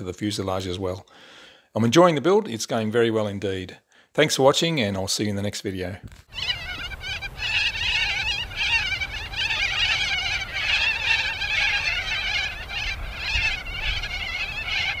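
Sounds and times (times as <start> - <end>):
flock of birds calling: 6.3 - 15.0.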